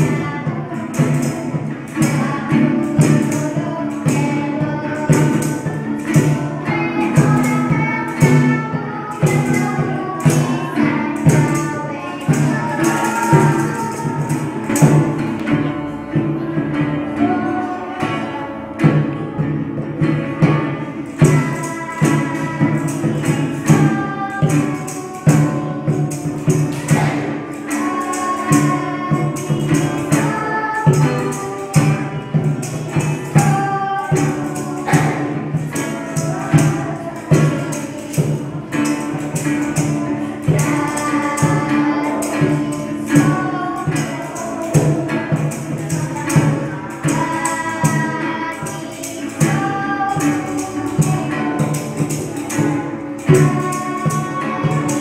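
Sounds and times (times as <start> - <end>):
hand shaker rattling: 0.0 - 15.6, 20.0 - 55.0
acoustic guitar: 0.0 - 55.0
children singing: 0.0 - 55.0
conga drum: 0.0 - 55.0.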